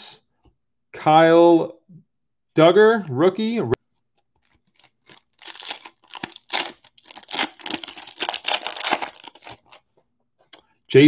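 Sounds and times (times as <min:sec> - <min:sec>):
foil wrapper tearing and crinkling: 0:04.4 - 0:09.9.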